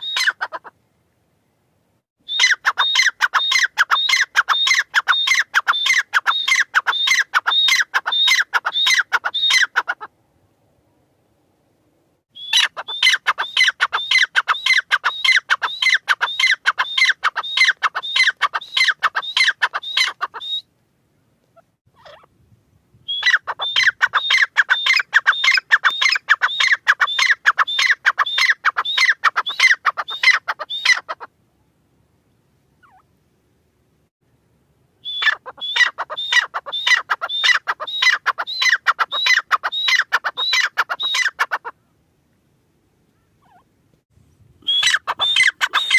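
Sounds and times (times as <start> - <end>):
bird calling rapid high notes: 44.6 - 45.9.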